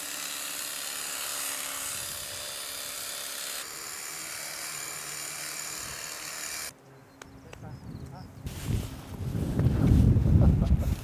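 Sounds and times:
electric shears buzzing: 0.0 - 6.7.

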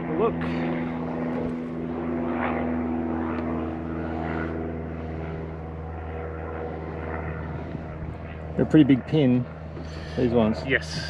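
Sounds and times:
propeller aircraft engine droning: 0.0 - 11.0.

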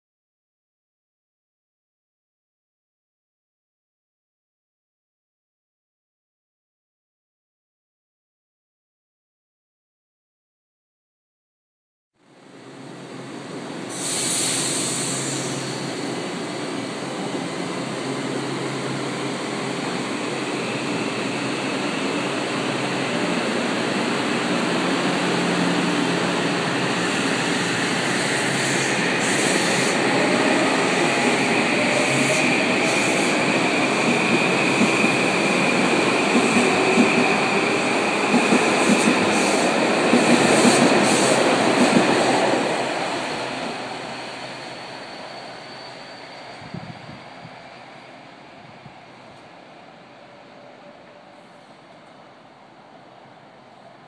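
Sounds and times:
train wheels rumbling and clicking: 27.5 - 42.4.

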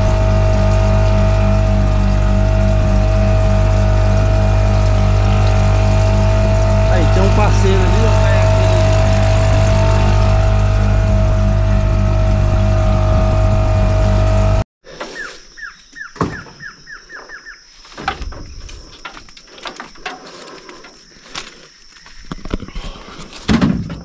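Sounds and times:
outboard motor running: 0.0 - 14.7
bird call with falling notes: 15.1 - 17.7.

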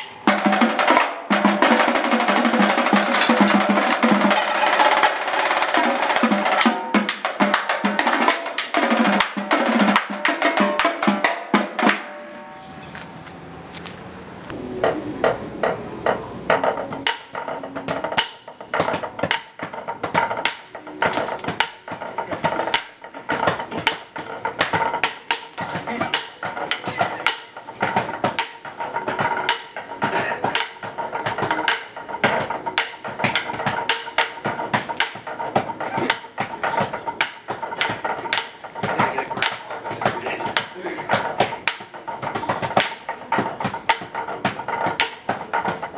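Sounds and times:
drumsticks tapping practice pad: 14.8 - 45.9.

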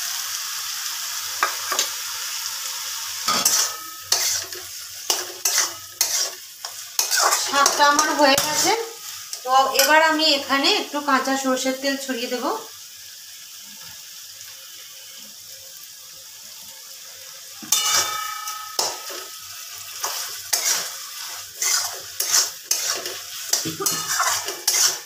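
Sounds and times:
faint pan sizzle: 0.0 - 25.0
metal spatula scraping a pan: 1.4 - 2.0, 3.2 - 10.1, 17.6 - 25.0.

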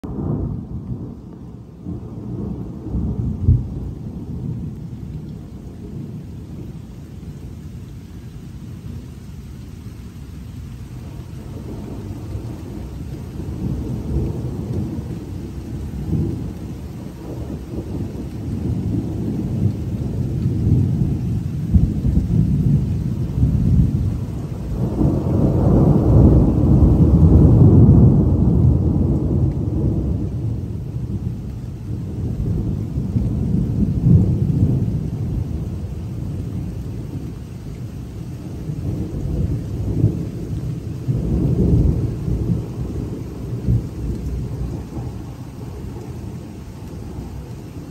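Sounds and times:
thunder rumbling: 0.0 - 7.8, 10.8 - 47.9.

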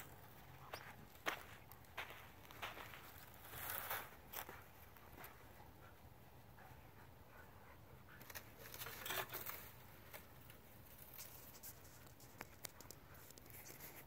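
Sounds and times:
dog steps on sandy ground: 0.0 - 5.5.

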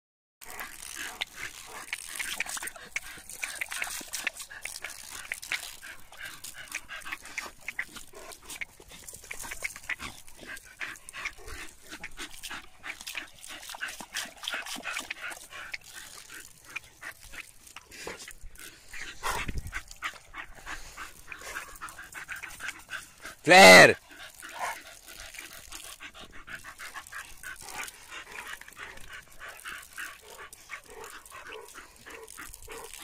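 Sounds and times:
water spattering from hose: 0.4 - 18.4
dog sounds: 0.4 - 33.0
water splashes: 0.4 - 33.0.

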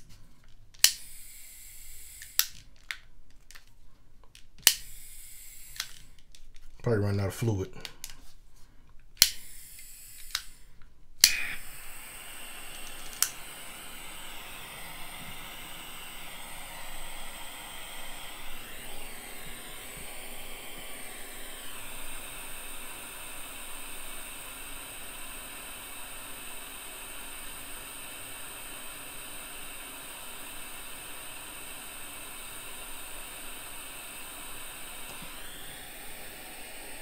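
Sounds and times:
hiss of burning gas: 0.8 - 2.5, 4.7 - 6.0, 9.2 - 37.0
igniter clicks: 11.2 - 14.3.

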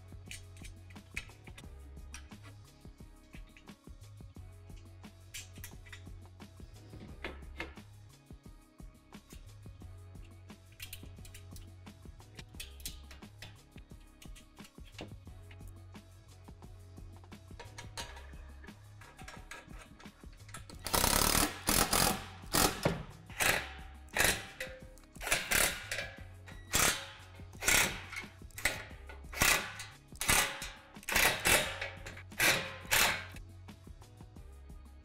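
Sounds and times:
soft background music: 0.0 - 35.0
cordless drill bursts: 20.9 - 22.8.

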